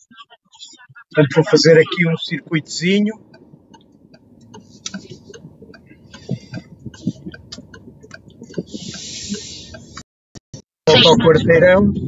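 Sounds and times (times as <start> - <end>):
clicks and ticks in car cabin: 2.3 - 10.0
short hiss: 8.7 - 10.0.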